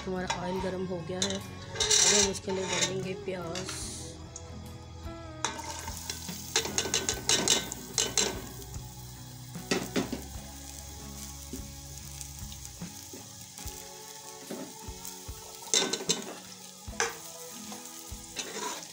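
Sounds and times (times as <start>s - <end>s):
metallic clatter of ladle and pot: 1.2s - 3.0s, 6.6s - 8.4s, 15.7s - 16.3s
onions sizzling in hot oil: 5.4s - 18.9s.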